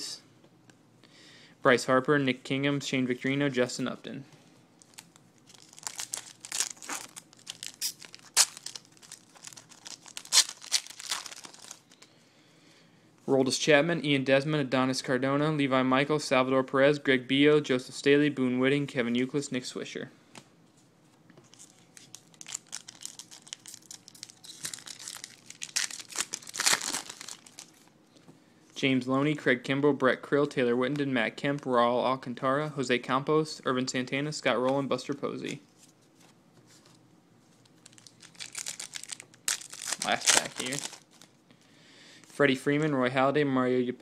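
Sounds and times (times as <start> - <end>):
foil wrapper crinkling: 4.8 - 12.0, 21.5 - 27.8, 37.7 - 41.4.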